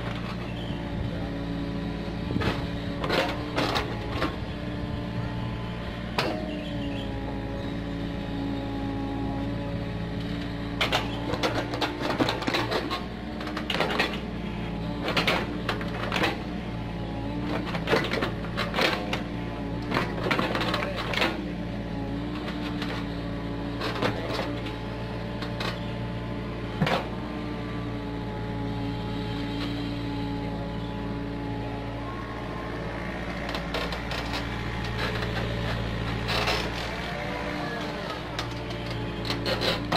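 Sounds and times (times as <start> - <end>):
excavator diesel engine running: 0.0 - 39.9
excavator bucket clanking: 2.3 - 4.4, 6.0 - 6.8, 10.8 - 16.6, 17.3 - 21.5, 23.8 - 24.8, 33.1 - 39.9.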